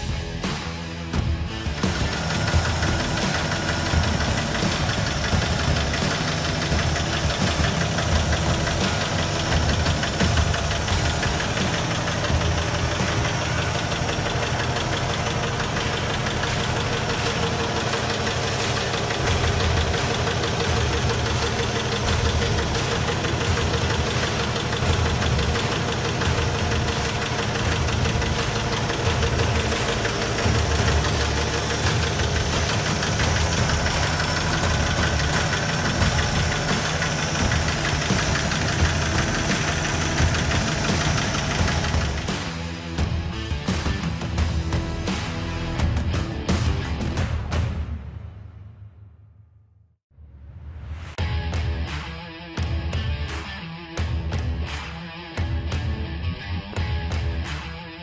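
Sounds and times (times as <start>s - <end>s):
pickup engine idling: 1.5s - 42.7s.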